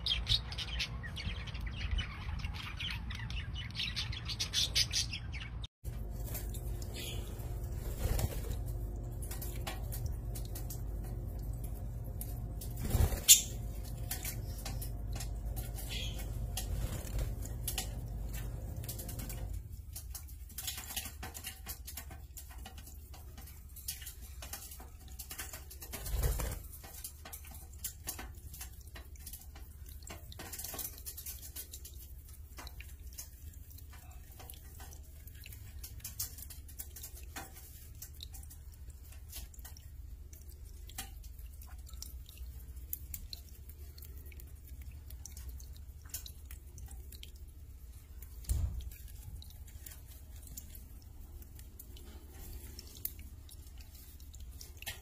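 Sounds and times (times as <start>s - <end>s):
steady low hum: 5.9s - 20.6s
water fountain trickling: 5.9s - 55.0s.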